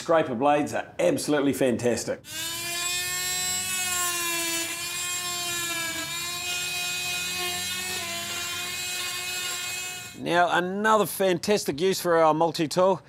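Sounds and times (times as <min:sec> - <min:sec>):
oscillating multi-tool whine: 0:02.3 - 0:10.2.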